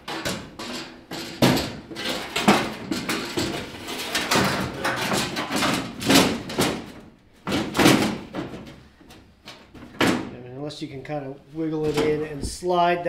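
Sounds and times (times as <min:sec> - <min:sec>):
sheet metal scraping and rattling: 0:00.0 - 0:10.3.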